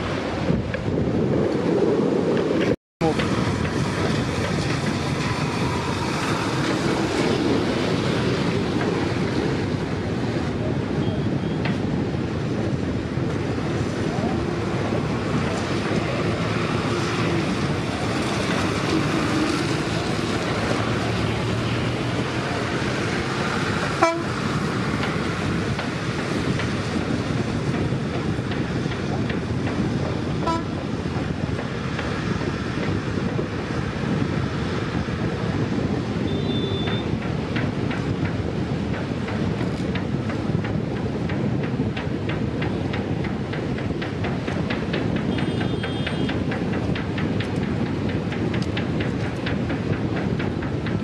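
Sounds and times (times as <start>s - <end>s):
distant train rolling: 0.0s - 51.0s
wind: 0.0s - 51.0s
train horn toots: 23.9s - 24.4s, 30.4s - 30.8s.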